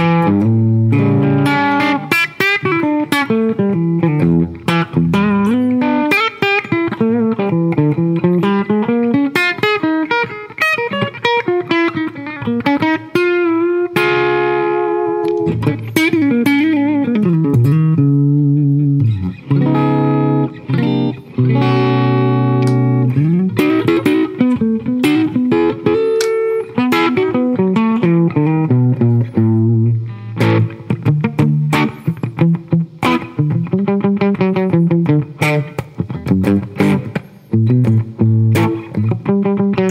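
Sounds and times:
electric guitar playing: 0.0 - 39.9.

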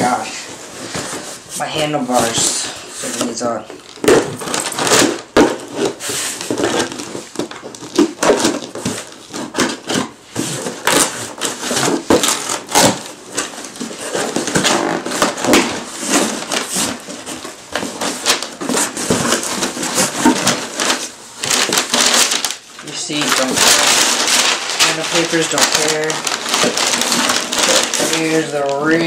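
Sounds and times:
packing paper rustling: 0.0 - 29.0.

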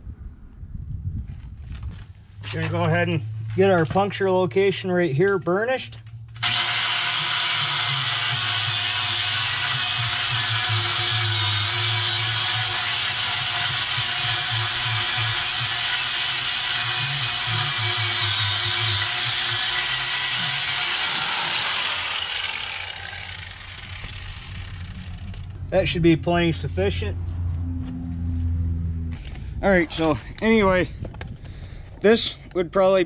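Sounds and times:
power tool high whine: 6.4 - 25.6.

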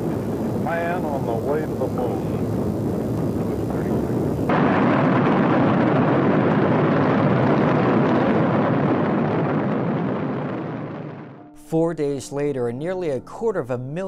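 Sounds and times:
rocket engines roaring: 0.0 - 11.4.

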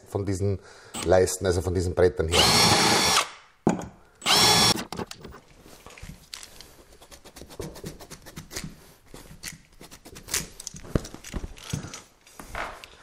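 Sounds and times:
cordless drill whining: 2.3 - 3.3, 4.2 - 5.1.

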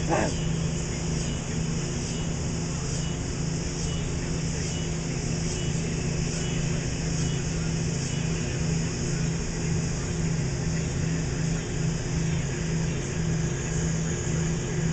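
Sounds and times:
constant hiss: 0.0 - 14.9
low engine drone: 0.0 - 14.9.

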